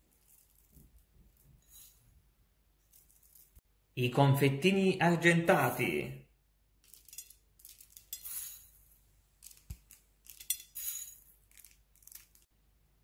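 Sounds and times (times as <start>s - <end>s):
sugar beads clinking in glass bowl: 0.0s - 2.1s, 6.9s - 9.6s, 10.2s - 12.4s.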